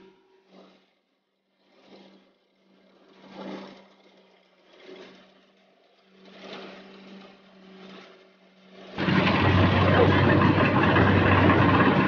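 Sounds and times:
distant machine engine hum: 0:00.0 - 0:12.0
rushing noise: 0:09.0 - 0:12.0.

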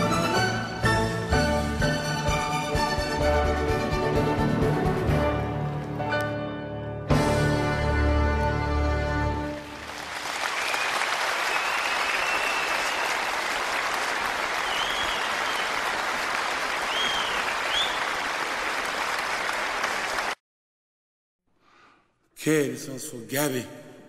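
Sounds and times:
crowd applause: 0:09.5 - 0:20.4
short high whistles: 0:10.6 - 0:13.2, 0:16.9 - 0:18.1.

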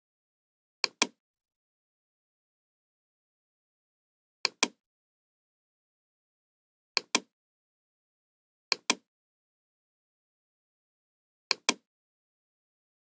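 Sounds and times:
computer mouse clicks: 0:00.8 - 0:01.2, 0:04.5 - 0:04.8, 0:07.0 - 0:07.3, 0:08.7 - 0:09.1, 0:11.5 - 0:11.9.

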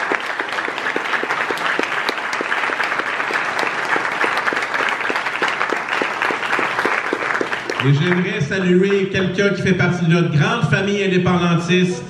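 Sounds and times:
nearby hands clapping evenly: 0:00.0 - 0:08.2
crowd applauding: 0:00.0 - 0:09.2.

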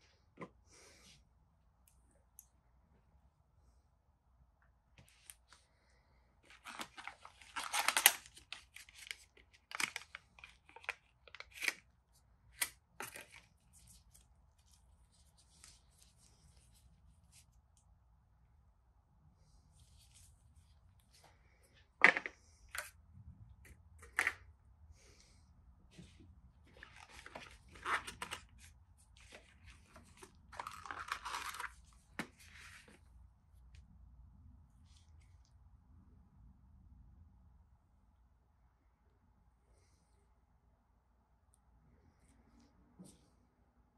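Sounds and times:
packaging rustling and crinkling: 0:06.5 - 0:11.8, 0:26.7 - 0:33.0
packaging clicks: 0:06.6 - 0:11.8.

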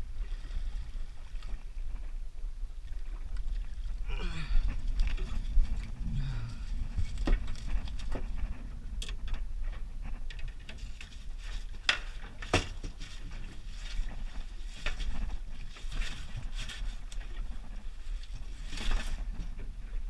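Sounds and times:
steady low rumble: 0:00.0 - 0:11.6.

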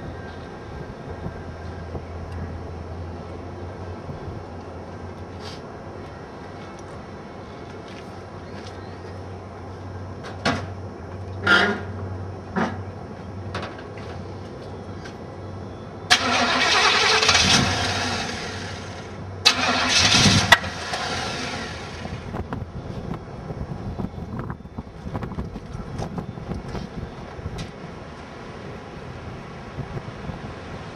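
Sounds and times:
car engine starting: 0:16.1 - 0:22.5.

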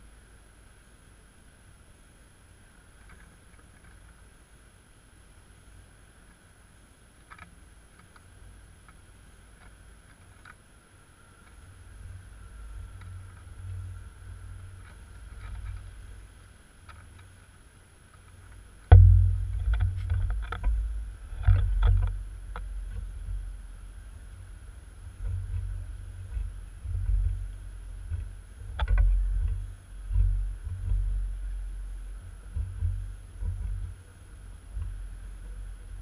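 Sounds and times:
wind buffeting microphone: 0:18.8 - 0:36.0
loud knock on camera: 0:18.9 - 0:20.8.

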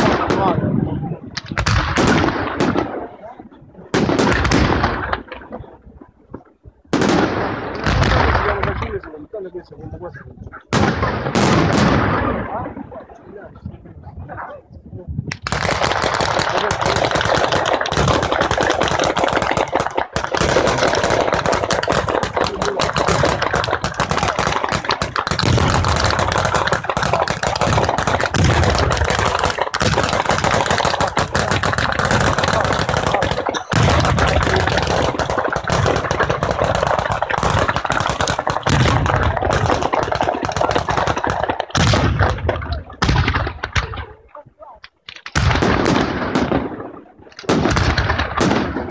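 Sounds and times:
firecrackers going off rapidly: 0:15.3 - 0:44.0, 0:45.2 - 0:48.9
low booms: 0:20.5 - 0:40.9, 0:41.7 - 0:44.3.

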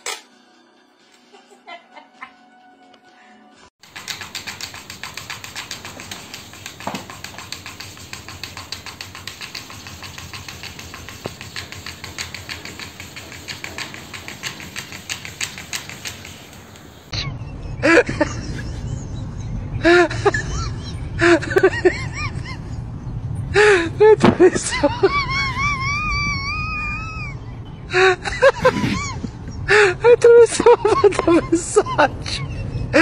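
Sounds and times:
cat pawing laptop keys clicking: 0:03.8 - 0:16.9.

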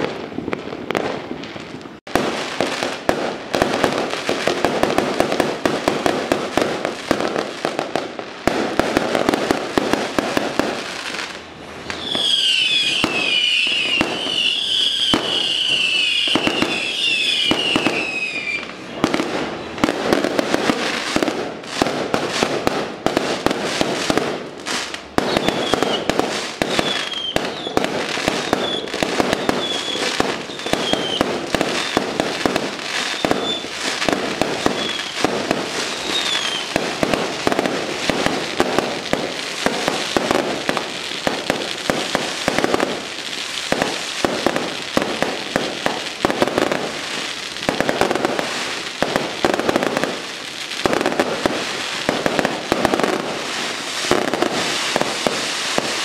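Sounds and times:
firecrackers crackling: 0:00.0 - 0:56.0
high falling whistles: 0:11.9 - 0:18.7, 0:25.2 - 0:26.1, 0:26.7 - 0:27.8, 0:28.4 - 0:31.2, 0:33.1 - 0:33.7, 0:34.7 - 0:35.2, 0:35.9 - 0:36.7.

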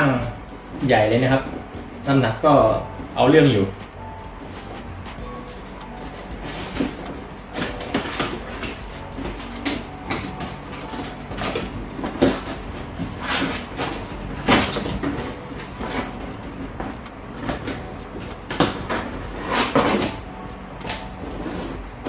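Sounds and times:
cardboard box scraping: 0:12.0 - 0:16.3.

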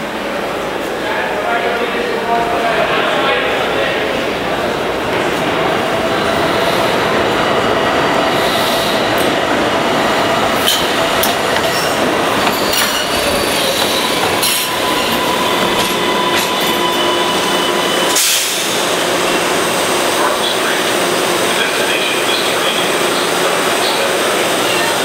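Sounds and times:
train rumble: 0:00.0 - 0:25.0
wheels squealing on rails: 0:10.2 - 0:25.0.

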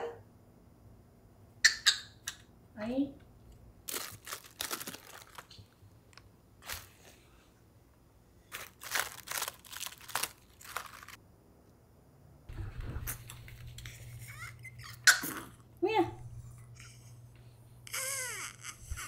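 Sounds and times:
cabbage leaves crunching and tearing: 0:03.9 - 0:05.5, 0:08.5 - 0:11.2.

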